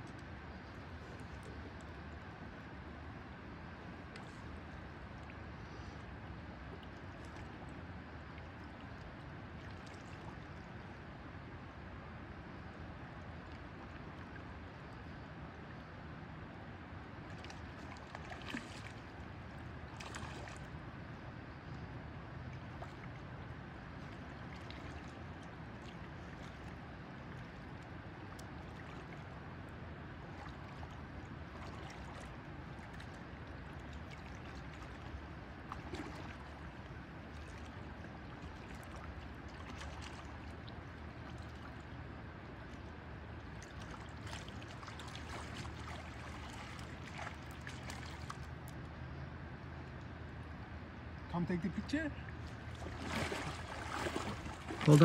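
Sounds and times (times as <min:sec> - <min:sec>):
splashes in water: 0:17.3 - 0:20.8, 0:30.2 - 0:41.9, 0:42.6 - 0:48.8, 0:52.2 - 0:55.0
river flowing over stones: 0:25.2 - 0:50.9, 0:52.0 - 0:55.0.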